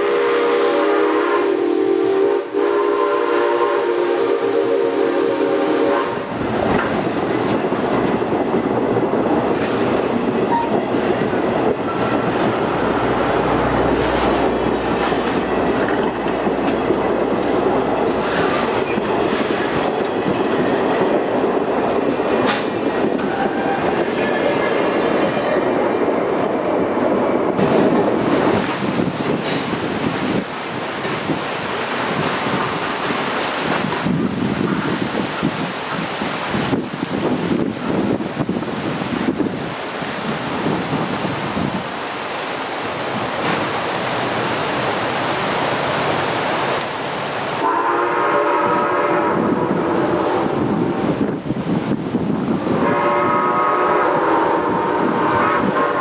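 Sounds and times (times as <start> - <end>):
steam whistle chord: 0.0 - 6.2, 47.6 - 49.4, 52.8 - 56.0
train wheels rumbling on track: 0.0 - 56.0
wind rumbling on microphone: 0.0 - 56.0.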